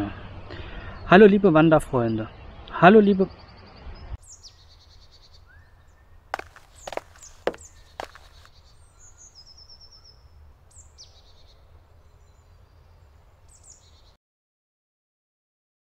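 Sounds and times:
birds chirping: 0:02.1 - 0:14.2.

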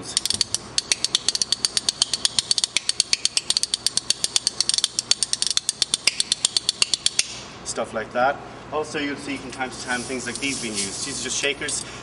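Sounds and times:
spoons clacking in rhythm: 0:00.1 - 0:07.4.

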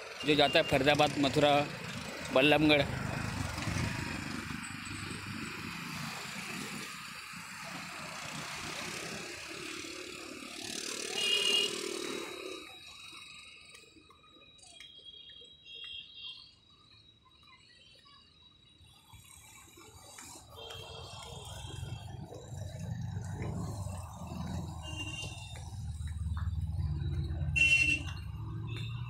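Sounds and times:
road traffic passing: 0:00.0 - 0:29.0
loud vehicle passing: 0:01.0 - 0:13.3, 0:21.1 - 0:29.0.

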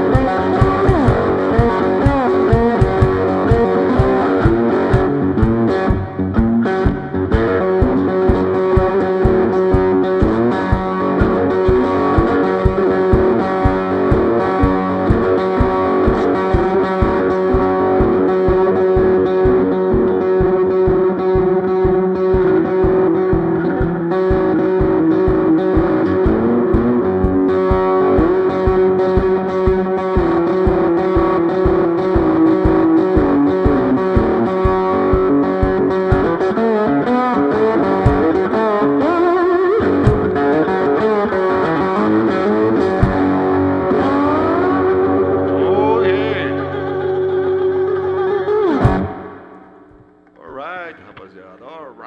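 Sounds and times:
distorted banjo blues playing: 0:00.0 - 0:52.0
steady low thump: 0:00.2 - 0:36.5.

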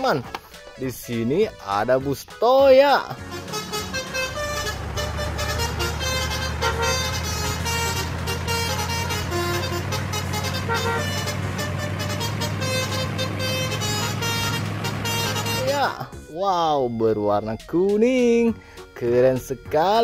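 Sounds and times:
bus engine drone: 0:03.2 - 0:16.1.

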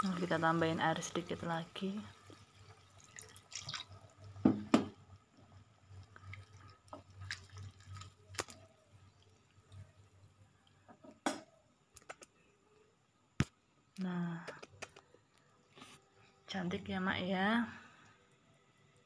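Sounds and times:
water poured into hot wok: 0:02.1 - 0:04.2.

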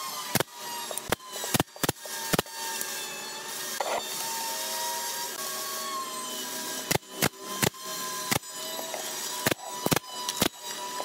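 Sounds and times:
nail gun firing: 0:00.3 - 0:02.6, 0:06.9 - 0:10.6
wood scraping on wood: 0:03.8 - 0:04.1.

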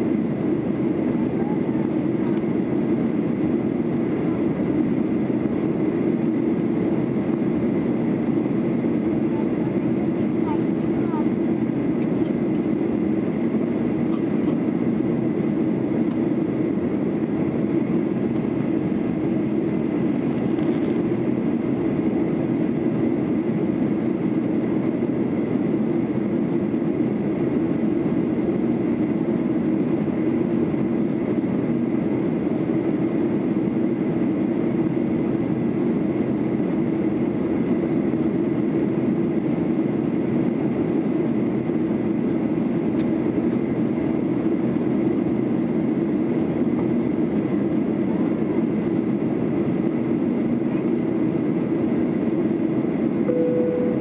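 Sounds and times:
jet engine drone: 0:00.0 - 0:54.0
faint high whine: 0:53.3 - 0:54.0.

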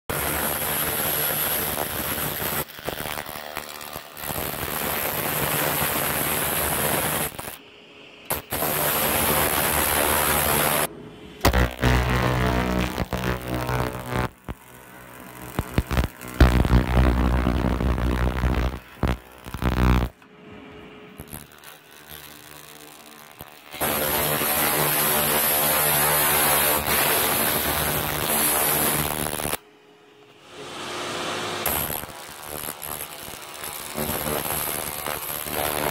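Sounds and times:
laser rust remover crackling hiss: 0:00.2 - 0:07.6, 0:08.3 - 0:20.2, 0:31.6 - 0:35.9
laser rust remover hissing: 0:08.3 - 0:14.6, 0:15.3 - 0:20.1.

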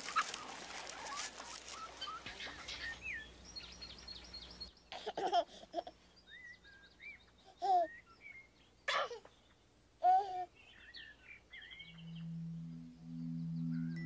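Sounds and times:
birds chirping: 0:00.0 - 0:14.0
outdoor background noise: 0:00.0 - 0:14.0.

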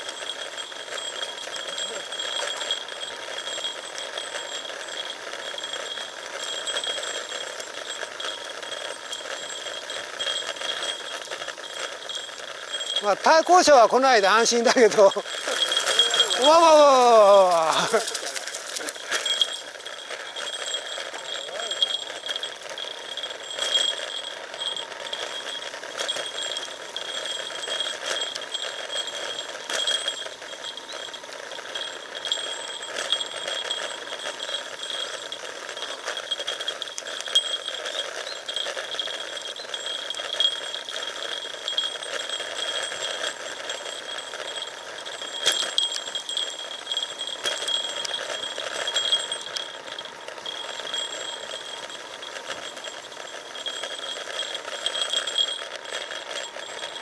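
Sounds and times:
bike rattling: 0:00.0 - 0:57.0
steady high-pitched buzz: 0:00.0 - 0:57.0
bike tyres crunching on gravel: 0:11.7 - 0:35.9.

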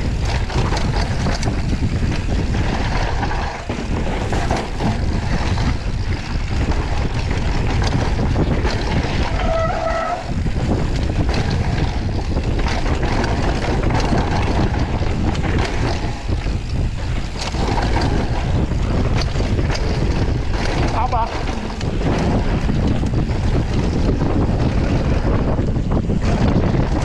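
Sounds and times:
mountain bike rumbling and rattling: 0:00.0 - 0:27.0
wind on microphone: 0:00.0 - 0:27.0.

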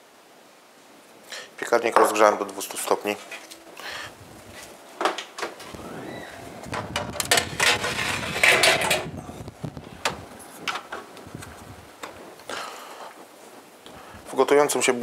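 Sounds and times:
oven door opening and shutting: 0:05.1 - 0:09.2
metal baking tray scraping: 0:06.4 - 0:09.2.

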